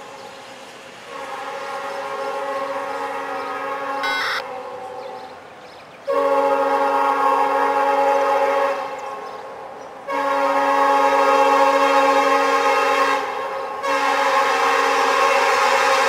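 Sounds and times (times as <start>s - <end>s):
locomotive air horn blasts: 1.1s - 4.4s, 6.1s - 9.0s, 10.1s - 16.0s.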